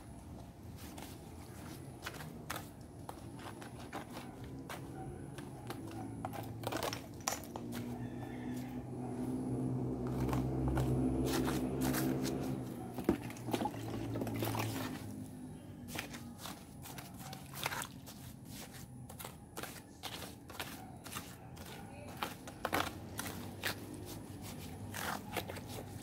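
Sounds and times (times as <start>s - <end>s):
trowel scraping gravelly soil: 9.9s - 12.9s, 14.2s - 26.0s.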